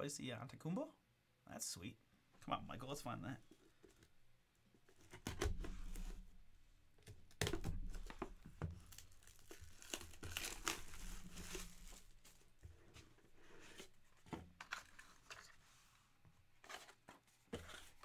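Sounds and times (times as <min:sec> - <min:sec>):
packaging crinkling and tearing: 0:08.8 - 0:12.5.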